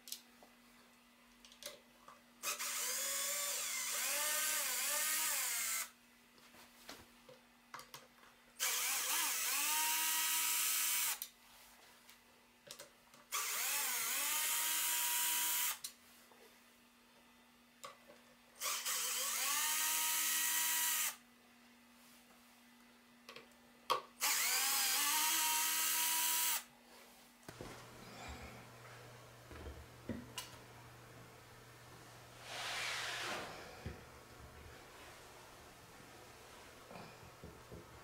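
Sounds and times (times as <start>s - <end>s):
cordless drill motor whine: 2.4s - 5.9s, 8.6s - 11.2s, 13.3s - 15.8s, 18.6s - 21.2s, 24.2s - 26.6s.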